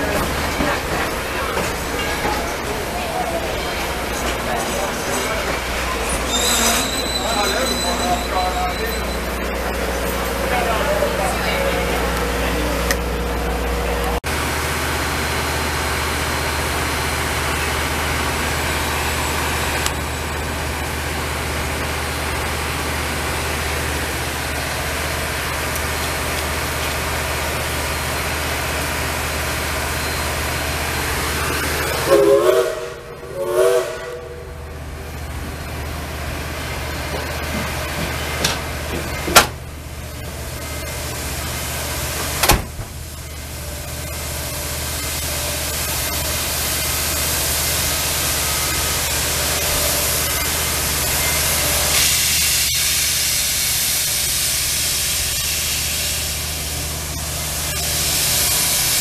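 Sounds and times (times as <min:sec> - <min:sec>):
steam locomotive hissing: 0:00.0 - 0:59.0
steam whistle blasts: 0:32.0 - 0:34.6.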